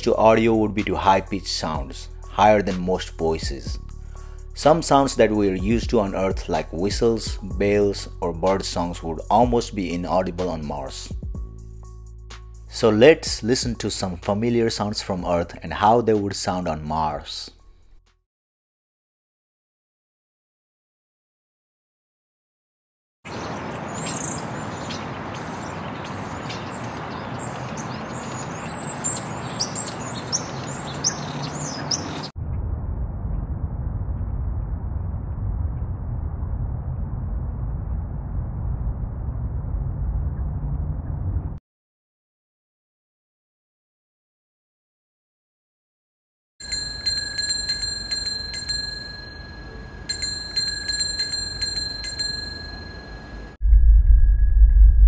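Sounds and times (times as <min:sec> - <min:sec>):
songbirds chirping: 0:23.3 - 0:32.3
loud low filtered rumble: 0:32.4 - 0:41.6, 0:53.6 - 0:55.0
bicycle bell dinging: 0:46.6 - 0:53.6
city noise hum: 0:46.6 - 0:53.6.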